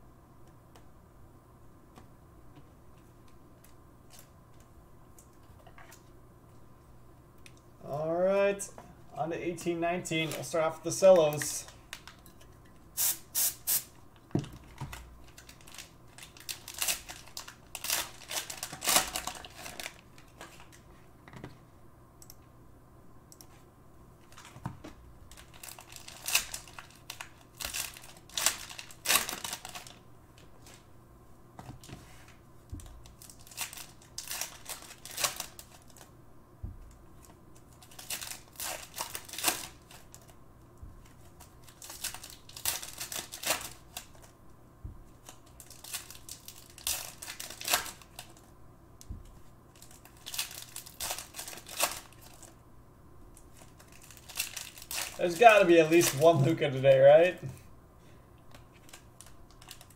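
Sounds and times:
cellophane wrappers tearing and crinkling: 0:14.6 - 0:20.8, 0:25.3 - 0:30.0, 0:32.8 - 0:36.1, 0:37.6 - 0:40.4, 0:41.1 - 0:44.4, 0:45.1 - 0:48.5, 0:49.7 - 0:52.6, 0:53.3 - 0:57.3, 0:58.5 - 0:59.9
cards being handled: 0:53.5 - 0:57.6.

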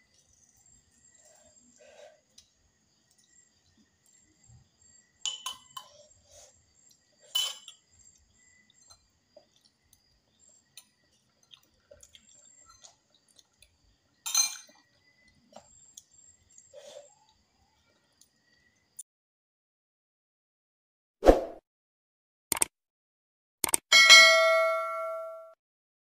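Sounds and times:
soft chewing and mouth noises: 0:00.0 - 0:04.8, 0:05.7 - 0:19.0.

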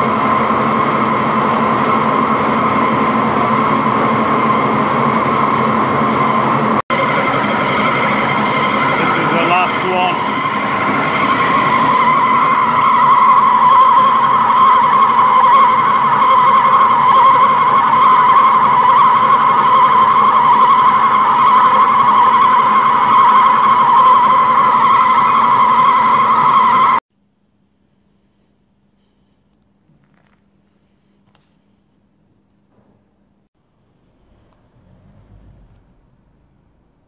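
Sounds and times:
lathe running: 0:00.0 - 0:27.0
lathe tool squealing in metal: 0:06.9 - 0:27.0.

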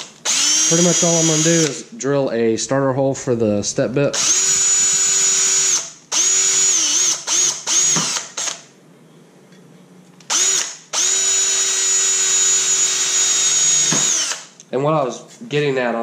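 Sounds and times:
electric drill whining: 0:00.0 - 0:01.8, 0:04.2 - 0:08.6, 0:10.3 - 0:14.6.

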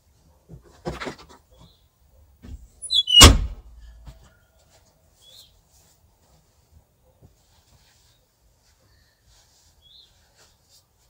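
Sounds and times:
loud bang: 0:03.2 - 0:03.6.

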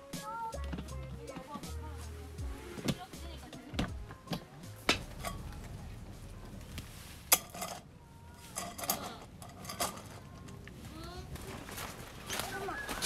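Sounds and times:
camping gear clinking and knocking: 0:02.4 - 0:13.0
small rattles: 0:05.0 - 0:10.8.

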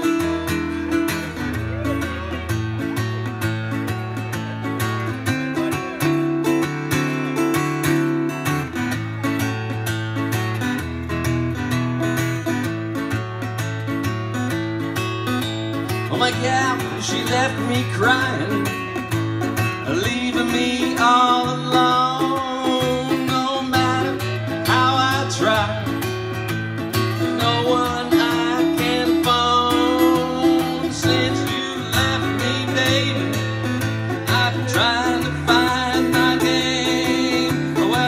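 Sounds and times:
acoustic guitar strumming: 0:00.0 - 0:38.0
bending melody line: 0:15.0 - 0:38.0.

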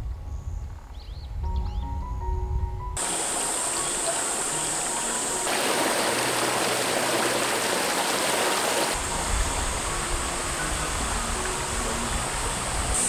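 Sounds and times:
stream running over rocks: 0:03.0 - 0:13.0.

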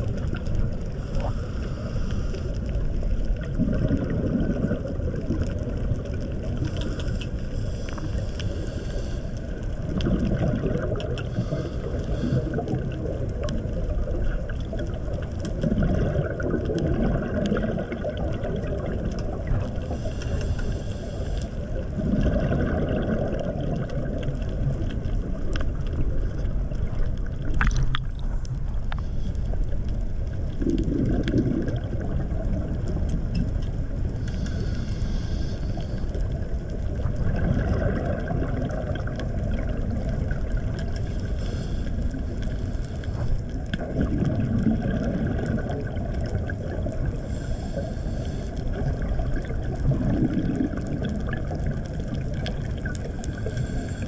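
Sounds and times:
faint clicks: 0:00.0 - 0:21.6, 0:23.0 - 0:44.0
bubbling: 0:00.0 - 0:54.0
muffled underwater rumble: 0:00.0 - 0:54.0.

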